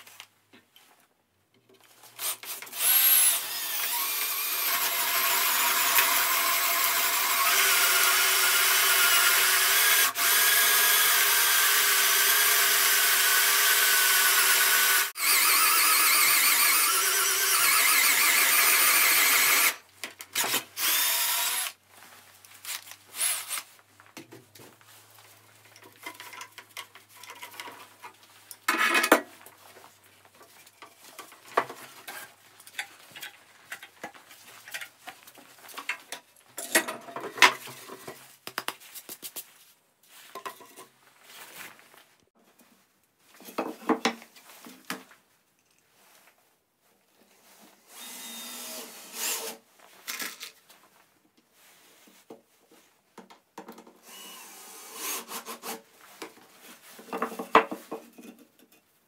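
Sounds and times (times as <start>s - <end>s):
cordless drill cutting wood: 2.2s - 19.8s, 20.4s - 21.8s, 23.2s - 23.7s, 47.9s - 49.6s, 54.0s - 55.8s
knocks of wood being handled: 56.2s - 58.9s.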